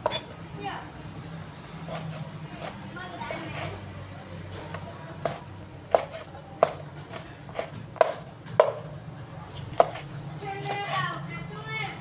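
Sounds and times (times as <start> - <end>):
cleaver chopping on wooden board: 5.2 - 8.9, 9.8 - 10.1.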